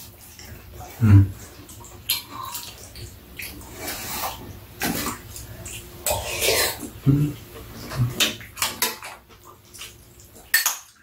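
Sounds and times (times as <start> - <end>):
soup slurping: 6.0 - 7.0.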